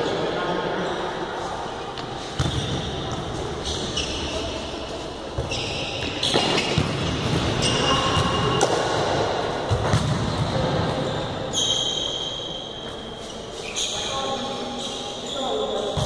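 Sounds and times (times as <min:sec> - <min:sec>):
shoes squeaking on floor: 0:02.2 - 0:08.7, 0:10.9 - 0:16.0
ball kicked and bouncing: 0:02.4 - 0:03.2, 0:09.7 - 0:10.6.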